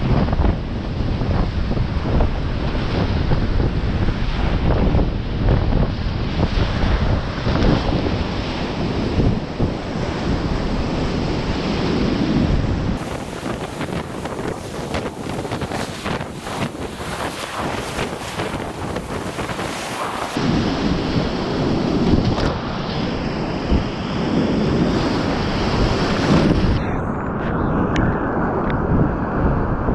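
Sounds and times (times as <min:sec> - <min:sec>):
wind noise on microphone: 0:00.0 - 0:29.9
whitewater rapids rushing: 0:13.0 - 0:20.4.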